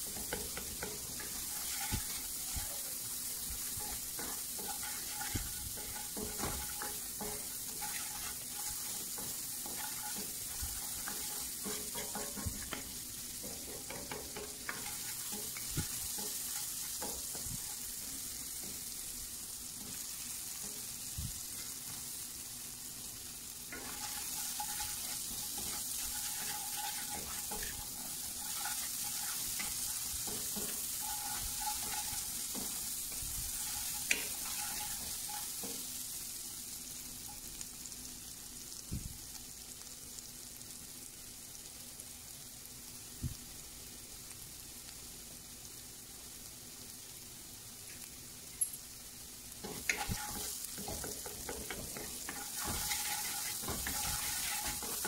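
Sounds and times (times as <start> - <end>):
spoon knocking against a pan: 0.0 - 2.0, 4.2 - 8.0, 11.0 - 17.6, 49.7 - 55.0
wooden spoon scraping a pan: 0.0 - 18.0, 23.7 - 35.8, 49.6 - 55.0
onion sizzling in a skillet: 0.0 - 55.0.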